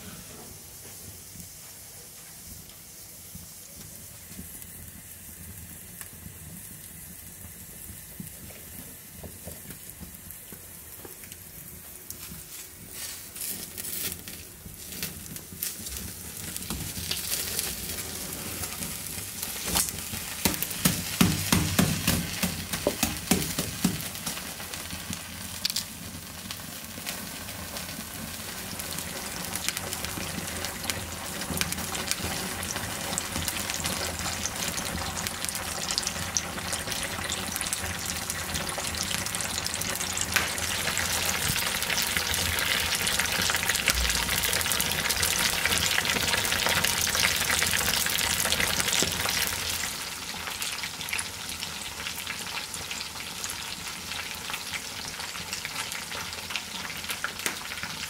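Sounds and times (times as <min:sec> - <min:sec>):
fat sizzling and bubbling: 0:00.0 - 0:58.0
fat crackling and popping: 0:03.7 - 0:50.2.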